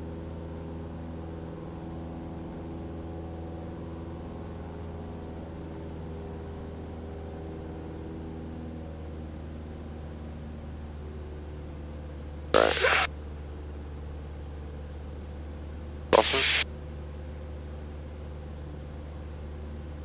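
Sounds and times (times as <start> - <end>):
thin high whine: 12.6 - 13.1, 16.2 - 16.6.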